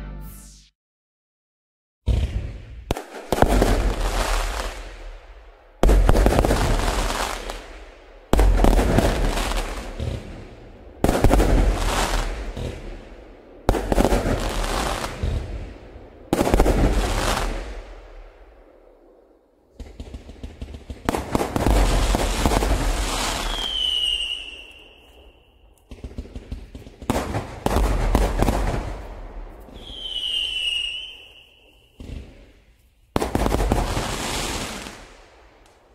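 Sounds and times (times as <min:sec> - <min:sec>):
fireworks crackling bangs: 0:02.1 - 0:18.4, 0:19.8 - 0:25.2, 0:25.8 - 0:35.9
firework whistle sliding down: 0:23.4 - 0:25.6, 0:29.7 - 0:32.0.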